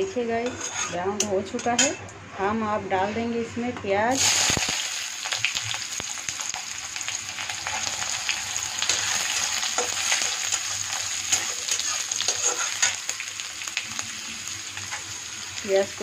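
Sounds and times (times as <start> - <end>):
metal spatula scraping pan: 0.4 - 1.0, 8.8 - 13.0
onions sizzling in hot oil: 4.1 - 16.0.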